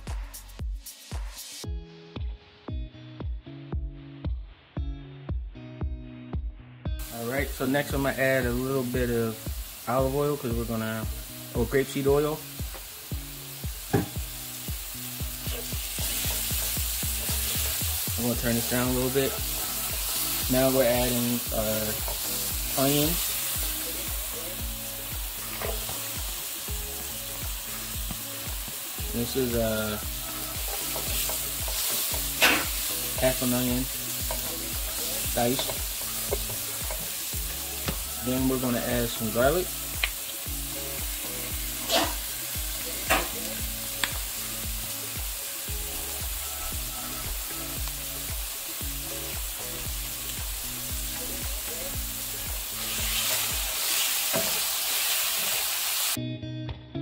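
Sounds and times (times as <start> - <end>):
soft background music: 0.0 - 57.0
mushrooms sizzling in oil: 7.0 - 56.2.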